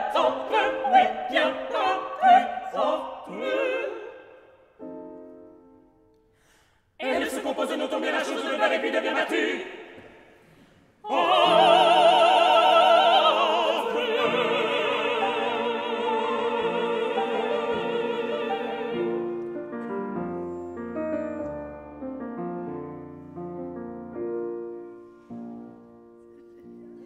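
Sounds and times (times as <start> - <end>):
operatic vocal quartet: 0.0 - 5.0, 6.8 - 21.4
grand piano: 0.0 - 27.0.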